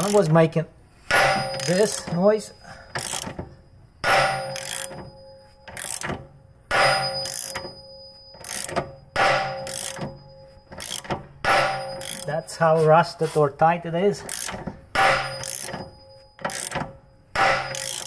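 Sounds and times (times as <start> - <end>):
loud metallic cracks: 16.4 - 18.0.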